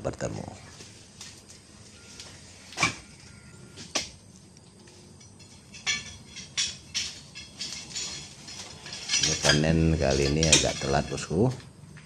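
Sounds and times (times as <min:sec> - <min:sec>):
clattering clinking hits: 0:04.8 - 0:11.8.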